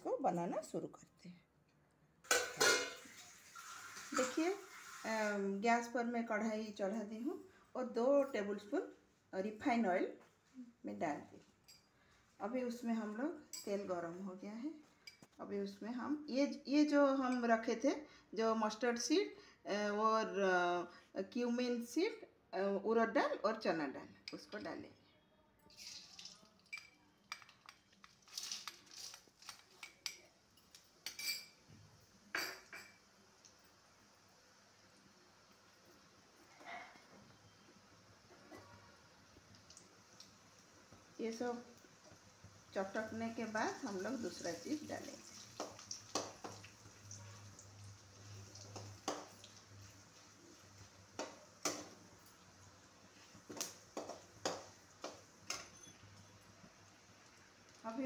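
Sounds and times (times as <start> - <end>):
seeds frying in oil: 3.0 - 5.4, 33.0 - 36.6, 39.0 - 58.0
metal spoon clinking on bowl: 26.7 - 27.8, 29.8 - 31.6.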